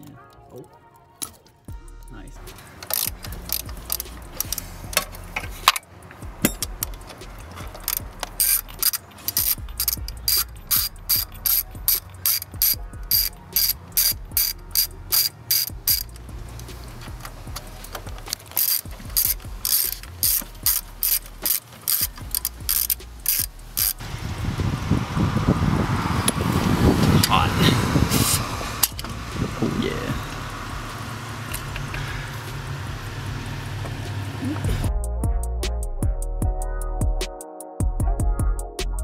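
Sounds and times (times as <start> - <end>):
socket ratchet clicking: 2.0 - 24.0, 28.8 - 29.5.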